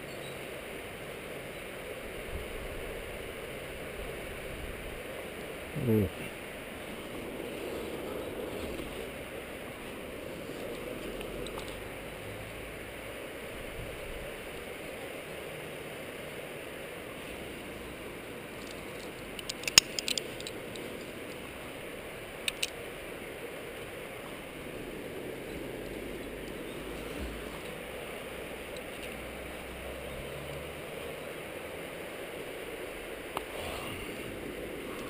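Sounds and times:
wind noise on microphone: 13.5 - 14.4
sharp clicks: 19.4 - 20.8, 22.4 - 22.8.

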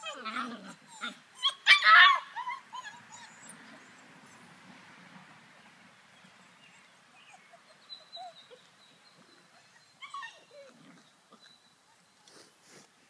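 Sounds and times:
puppies whimpering and yipping: 0.0 - 4.5, 7.1 - 12.2.

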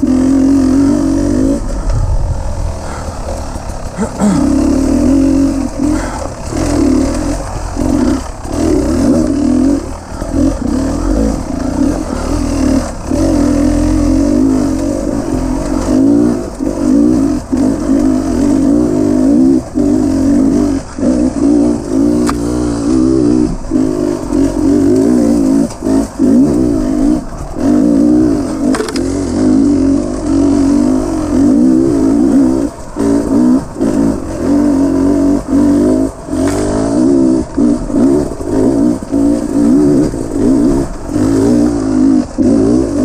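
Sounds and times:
dirt bike engine under load: 0.0 - 43.0.

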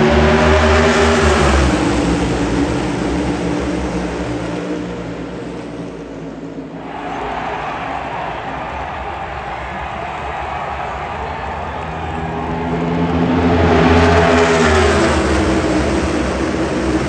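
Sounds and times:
race cars passing by: 0.0 - 17.0.

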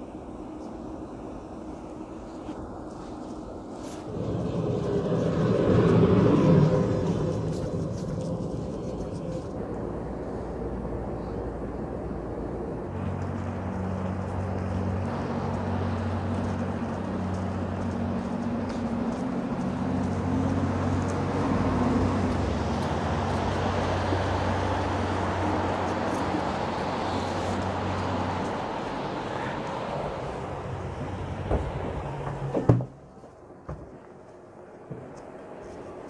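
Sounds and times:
street traffic hum: 0.0 - 36.0.

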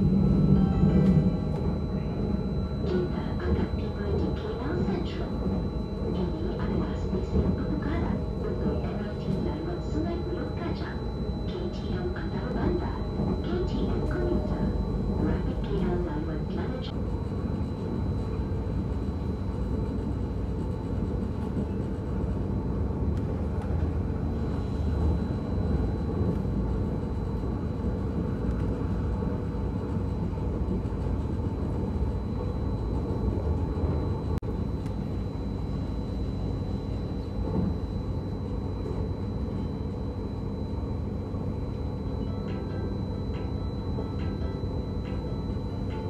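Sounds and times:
faint high-pitched tone: 0.0 - 16.9
train rumble from inside: 0.0 - 46.0.

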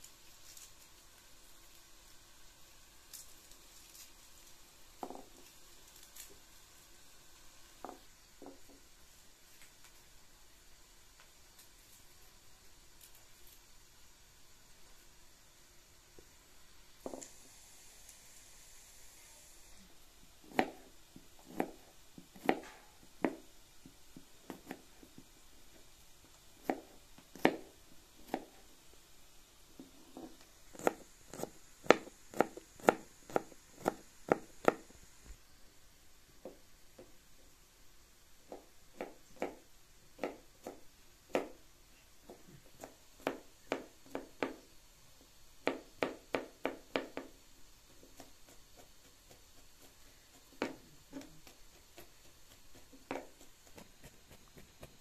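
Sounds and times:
knife chopping on cutting board: 20.4 - 23.5, 26.6 - 28.6, 30.1 - 34.9, 38.5 - 39.6, 40.2 - 41.6, 45.6 - 47.4, 48.0 - 55.0.

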